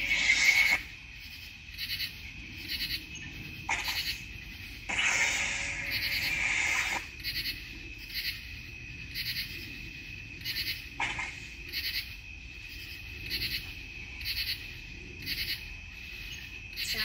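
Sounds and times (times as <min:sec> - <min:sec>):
burst of noise: 0:00.0 - 0:01.0, 0:03.7 - 0:04.2, 0:04.8 - 0:07.2
high cricket trill: 0:00.0 - 0:17.0
pulsed insect chirp: 0:00.0 - 0:17.0.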